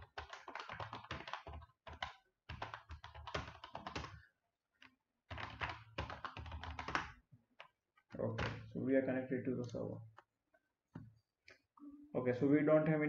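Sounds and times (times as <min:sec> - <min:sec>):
typing on keyboard: 0:00.0 - 0:04.2, 0:05.3 - 0:07.7.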